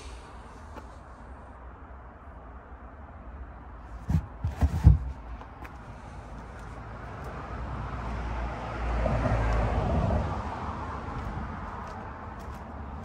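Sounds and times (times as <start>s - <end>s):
vehicle passing: 5.7s - 13.0s.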